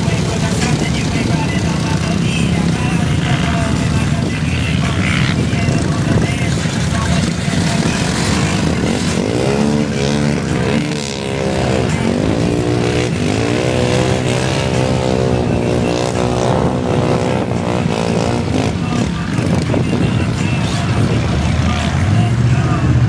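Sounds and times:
off-road engines revving: 0.0s - 23.0s
steady engine rumble: 0.0s - 23.0s.

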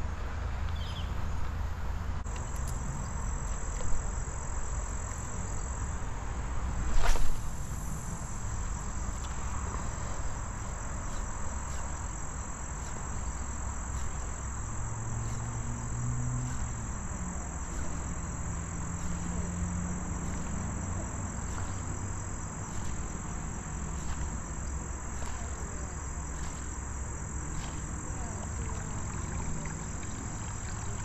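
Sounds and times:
low steady rumble: 0.0s - 31.0s
insects chirring: 2.2s - 31.0s
brief rush of noise: 6.8s - 8.2s.

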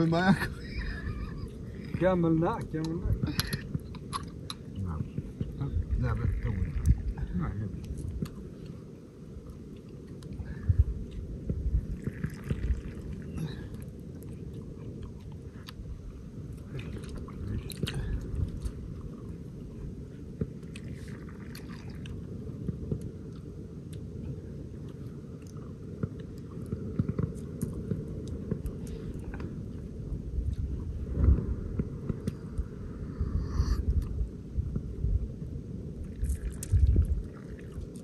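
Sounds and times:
campfire crackling: 0.0s - 38.0s
steady low rumble: 0.0s - 38.0s
sharp pops and ticks: 1.9s - 5.6s, 7.8s - 8.8s, 31.2s - 32.7s.

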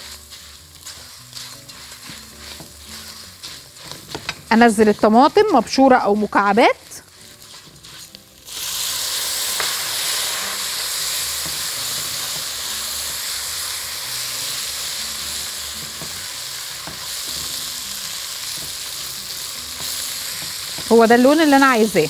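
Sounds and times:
tomatoes sizzling in a pan: 0.0s - 22.0s
stirring knocks: 0.8s - 5.5s.

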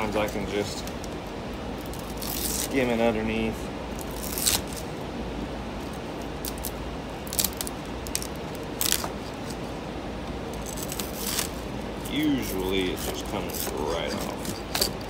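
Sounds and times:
steady background hum: 0.0s - 15.0s
knife scraping on plastic: 13.0s - 15.0s.

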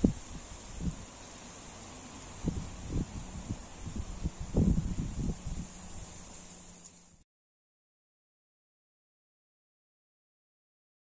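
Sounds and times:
wind buffeting microphone: 0.0s - 1.2s, 2.4s - 6.3s
faint steady hiss: 0.0s - 7.2s.

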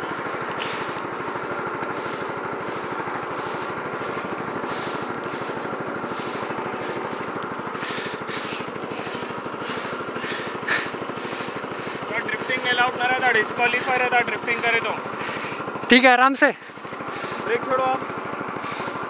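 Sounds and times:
small petrol engine idling: 0.0s - 19.0s.

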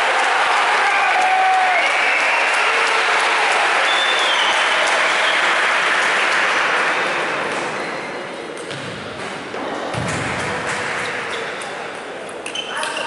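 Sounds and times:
spectators applauding: 0.0s - 7.5s.

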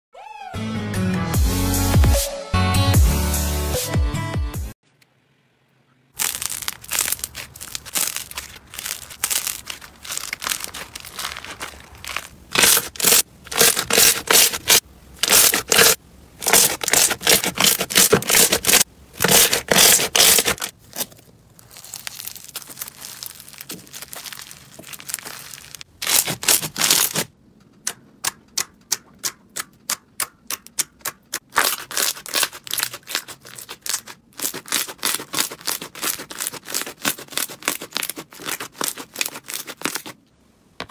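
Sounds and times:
slime crackling and squelching: 6.2s - 27.3s, 30.7s - 40.2s
quick evenly spaced pops: 26.1s - 37.8s.

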